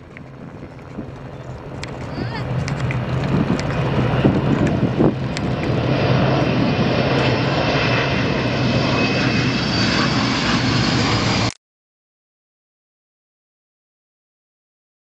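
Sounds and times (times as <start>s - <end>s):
jet aircraft flying past: 0.0s - 11.6s.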